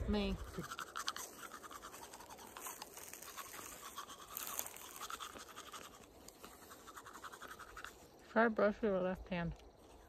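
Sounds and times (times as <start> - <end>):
toothbrushes scrubbing teeth: 0.5 - 8.0.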